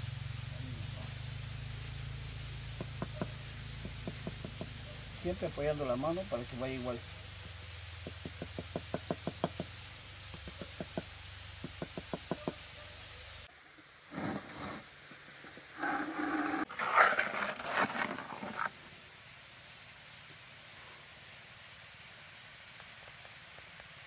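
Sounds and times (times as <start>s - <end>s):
scraping mortar in plastic bucket: 14.1s - 14.8s, 15.8s - 18.8s.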